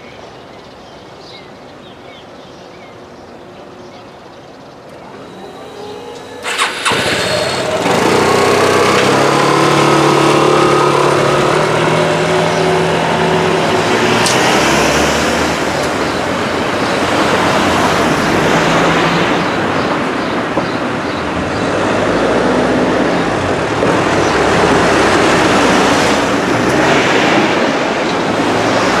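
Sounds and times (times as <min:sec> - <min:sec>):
cars driving over tracks: 0:04.8 - 0:29.0
scooter engine revving: 0:05.0 - 0:19.8, 0:21.4 - 0:29.0.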